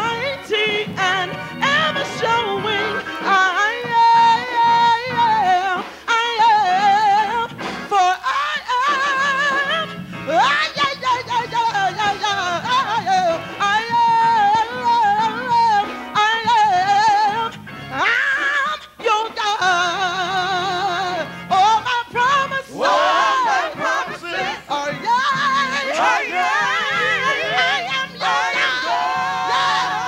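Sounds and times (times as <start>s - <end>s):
woman singing gospel: 0.0s - 30.0s.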